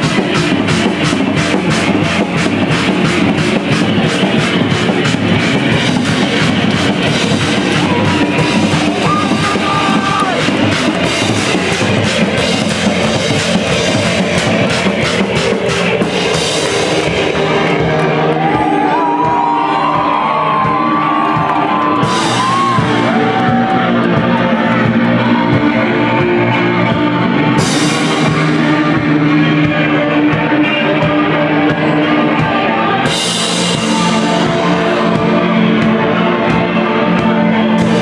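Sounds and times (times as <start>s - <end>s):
drum hits: 0.0s - 26.4s
live shoegaze band playing: 0.0s - 38.0s.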